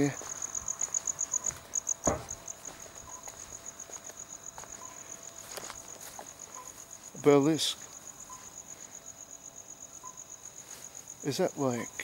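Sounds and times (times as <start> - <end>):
crickets chirping: 0.0 - 12.0
single knock: 2.0 - 2.4.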